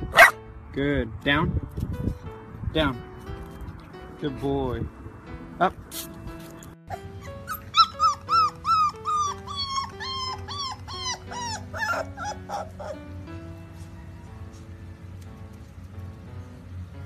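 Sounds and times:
background music: 0.0s - 17.0s
puppy yipping: 0.1s - 0.4s, 6.9s - 13.1s.

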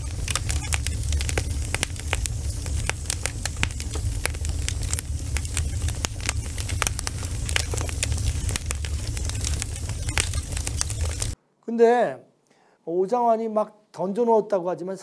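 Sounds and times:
low fire rumble: 0.0s - 11.4s
wood fire crackling and popping: 0.0s - 11.4s.

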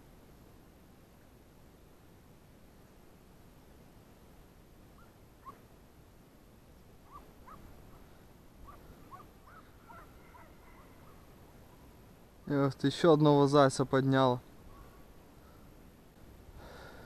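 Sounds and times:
dog yelping: 5.0s - 5.6s, 7.0s - 7.7s, 8.6s - 11.2s.

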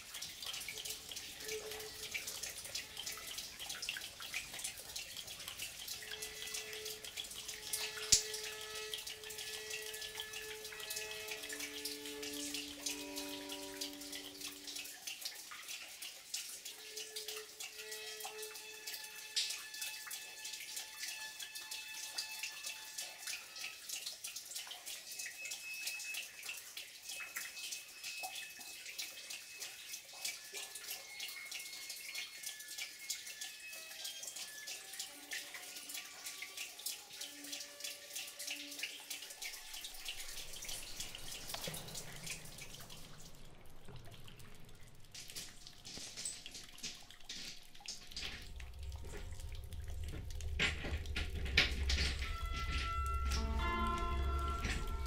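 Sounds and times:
water dripping onto rock: 0.0s - 55.0s
low hum: 48.3s - 55.0s.

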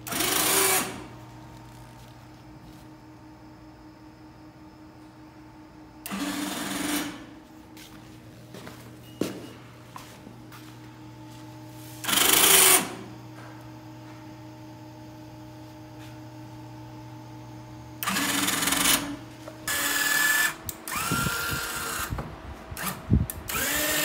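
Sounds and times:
faint steady hum: 0.9s - 24.0s
small electric motor whirring: 18.0s - 22.2s, 22.8s - 24.0s.

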